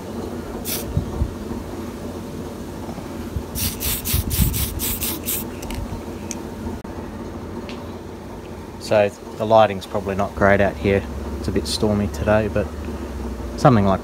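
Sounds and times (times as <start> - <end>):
steady low rumble: 0.0 - 14.0
spray can hissing: 0.6 - 0.9, 3.6 - 5.8.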